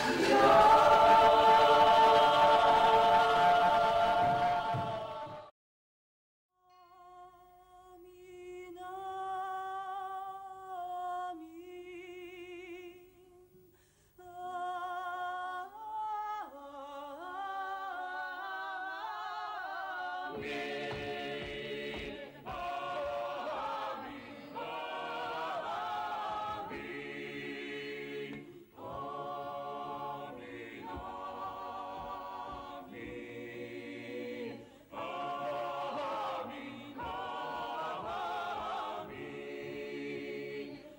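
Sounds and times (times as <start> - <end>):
unaccompanied choir singing: 0.0 - 5.5, 16.5 - 40.9.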